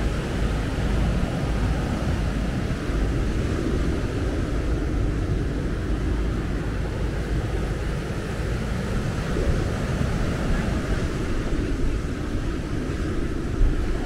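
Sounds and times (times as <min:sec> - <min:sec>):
waves breaking on shore: 0:00.0 - 0:14.0
wind buffeting microphone: 0:00.0 - 0:14.0.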